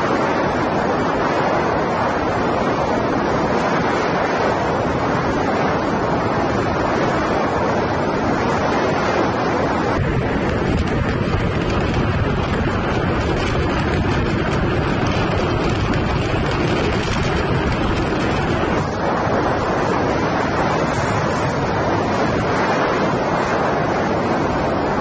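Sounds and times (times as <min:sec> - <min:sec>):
wind rushing on microphone: 0:00.0 - 0:25.0
low rumble: 0:09.9 - 0:22.4.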